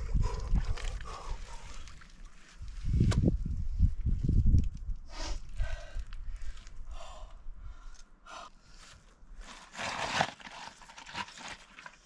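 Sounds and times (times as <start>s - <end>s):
bare feet crunching on stones and ice: 9.4s - 12.0s.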